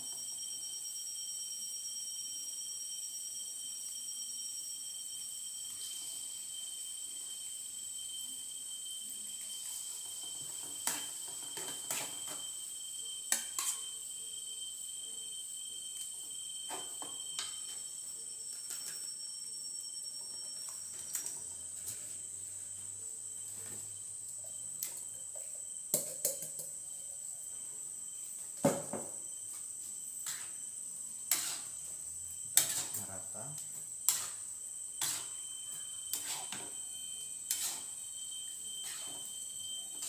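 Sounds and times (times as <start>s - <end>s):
metal spoon scraping pot: 32.5s - 33.0s, 34.0s - 35.4s, 36.1s - 36.7s, 37.4s - 38.0s.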